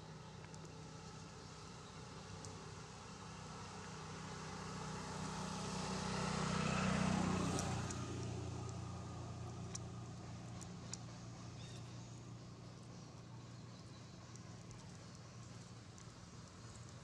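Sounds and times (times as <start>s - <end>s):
motor vehicle passing: 3.4s - 17.0s.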